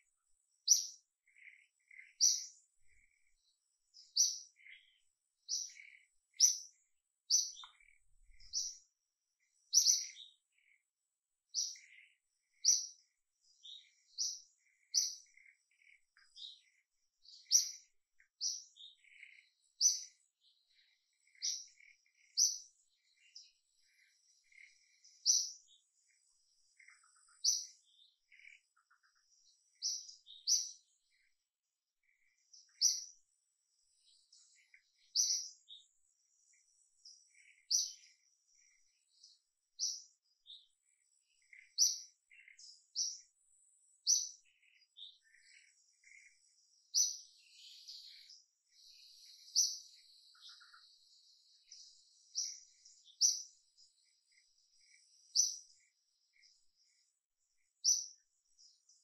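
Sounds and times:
bird high chirp: 0:00.0 - 0:31.4, 0:32.0 - 0:59.0
faint high insect whine: 0:00.0 - 0:59.0
softer bird calls: 0:00.0 - 0:59.0.

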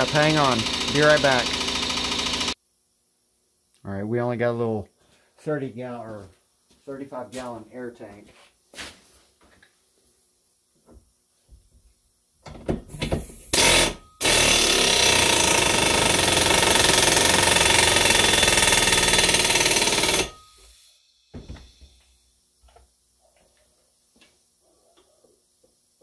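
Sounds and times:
air impact wrench hammering: 0:00.0 - 0:02.6, 0:13.0 - 0:20.8.

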